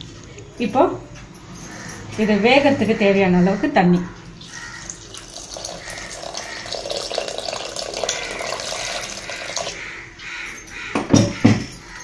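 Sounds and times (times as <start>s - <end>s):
water pouring into a pot: 4.4s - 9.8s.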